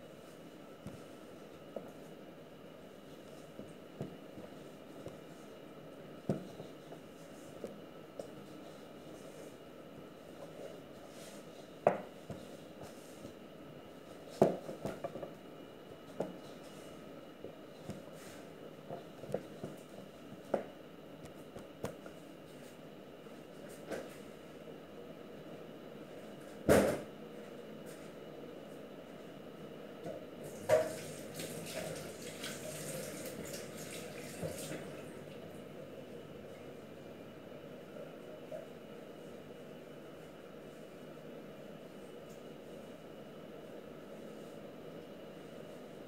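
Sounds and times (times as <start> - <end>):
tap water running into sink: 30.5 - 35.0.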